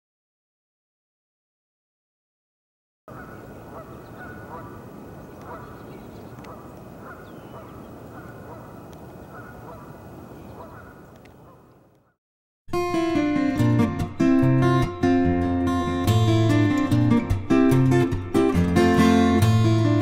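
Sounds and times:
geese honking: 3.1 - 12.0
steady background noise: 3.1 - 12.0.

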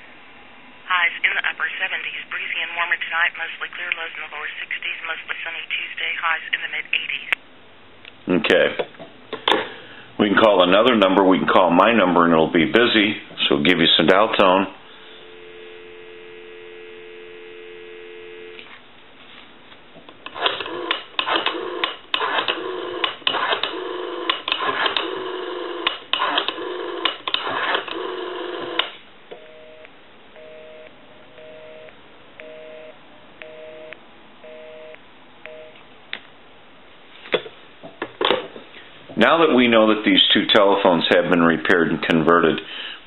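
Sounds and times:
telephone dial tone: 15.2 - 18.6, 20.3 - 35.8
two-tone busy signal beeps: 29.4 - 35.8.

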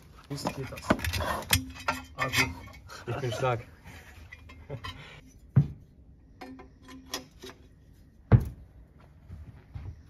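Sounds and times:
metal clinks and knocks: 0.3 - 2.9.

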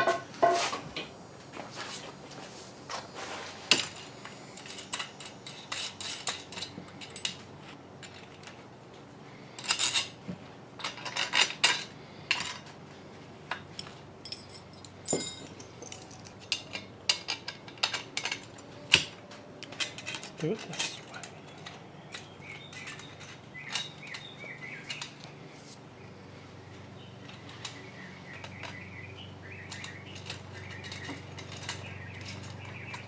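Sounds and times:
metal hardware clinking and rattling: 3.7 - 8.7, 9.5 - 10.2, 10.8 - 12.7, 13.5 - 25.3, 29.5 - 33.0.

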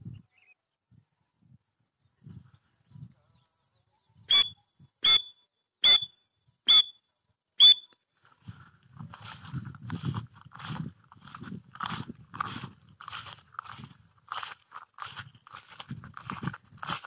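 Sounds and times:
francolin calling shrill notes: 4.3 - 7.0, 7.6 - 7.9.

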